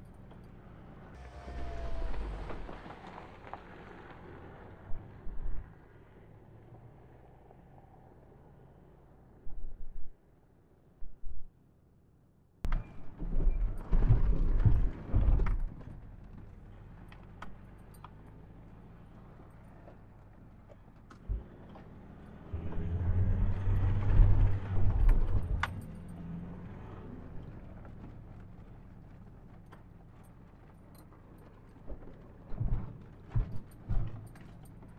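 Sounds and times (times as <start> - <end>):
truck engine rumble: 0.0 - 10.1, 12.6 - 34.9
truck jolting and rattling: 12.7 - 34.9.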